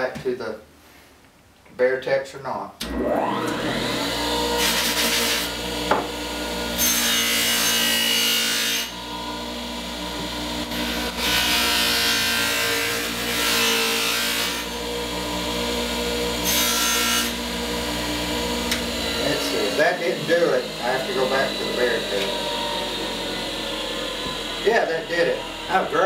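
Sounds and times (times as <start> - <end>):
bench grinder motor running: 2.8 - 26.0.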